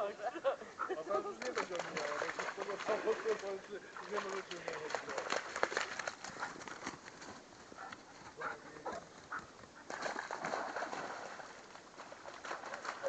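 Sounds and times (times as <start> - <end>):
paws splashing in puddles: 0.8 - 13.0
dog paws rustling undergrowth: 4.2 - 9.9.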